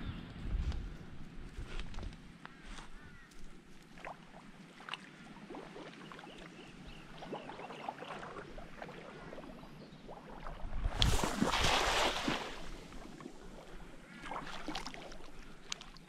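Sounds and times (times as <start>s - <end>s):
cast net splashing into water: 10.1s - 15.8s.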